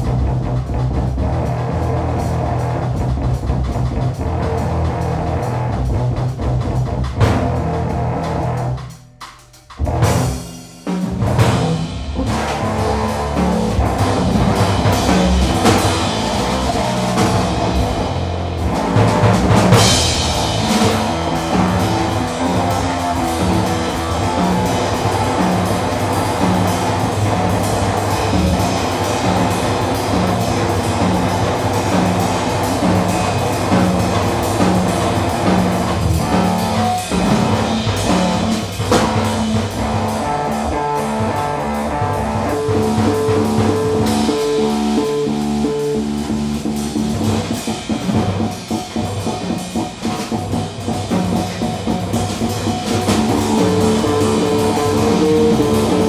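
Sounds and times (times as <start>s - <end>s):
electric bass guitar: 0.0s - 8.9s, 11.0s - 56.0s
busy drumming: 0.0s - 56.0s
cymbal crash: 19.6s - 25.0s.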